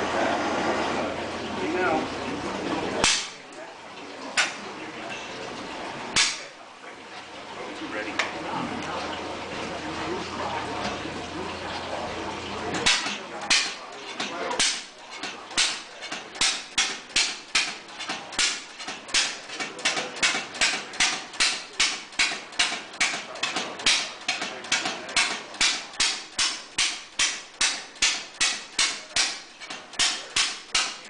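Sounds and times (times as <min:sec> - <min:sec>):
old engine banging steadily: 0:12.7 - 0:31.0.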